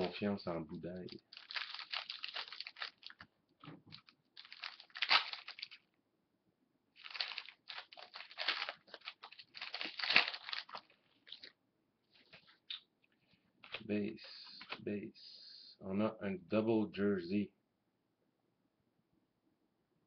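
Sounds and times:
foil wrapper crinkling: 1.0s - 3.2s, 3.9s - 5.8s, 7.0s - 11.5s
cards being handled: 7.0s - 11.5s, 13.6s - 14.8s.

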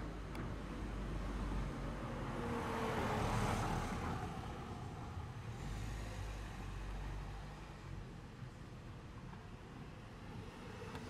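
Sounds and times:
vehicle passing by: 1.2s - 7.8s.

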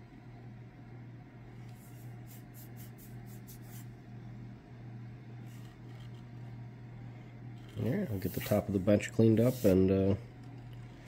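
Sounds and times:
steady low hum: 0.0s - 11.0s
light scratches: 5.4s - 11.0s.

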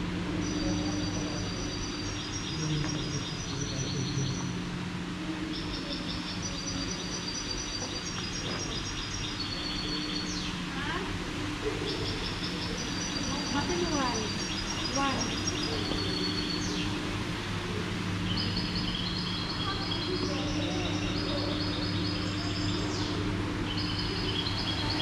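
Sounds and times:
steady low hum: 0.0s - 25.0s
high-pitched chirping trills: 11.8s - 17.0s, 18.2s - 25.0s.

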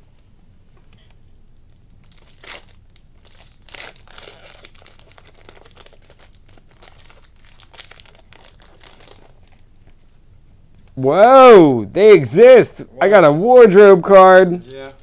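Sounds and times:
foil wrapper crinkling and tearing: 2.0s - 9.7s.

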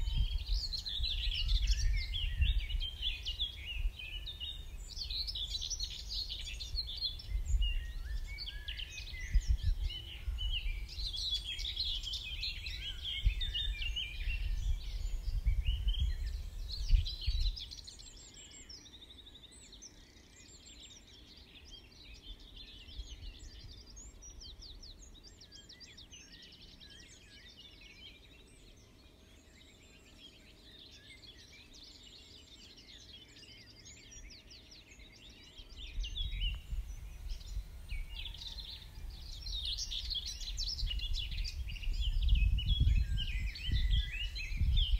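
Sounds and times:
wind on microphone: 0.0s - 17.8s, 35.7s - 44.9s
songbirds singing: 0.0s - 44.9s.

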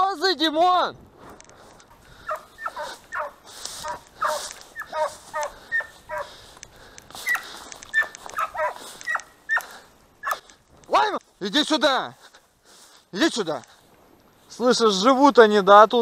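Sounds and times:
dog yelping: 2.2s - 6.3s, 7.2s - 10.5s.

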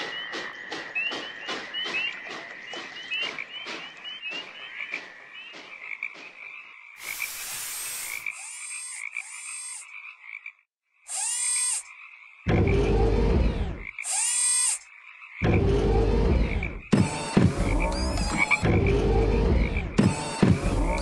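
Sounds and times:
frogs croaking: 0.0s - 12.9s, 13.5s - 18.8s
brief hiss: 7.0s - 8.3s.

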